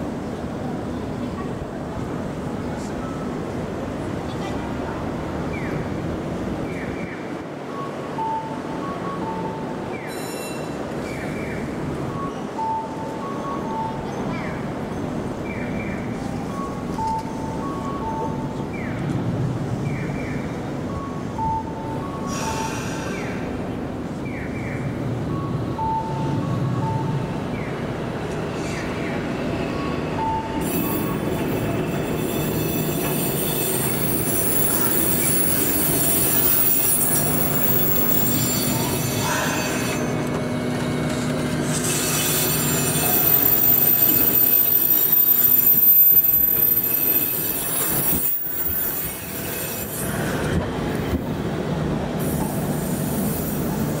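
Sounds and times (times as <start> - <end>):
tram rumbling past: 0.0 - 54.0
wheels squealing on rails: 9.2 - 12.5, 22.0 - 23.8, 25.3 - 51.2, 52.2 - 54.0.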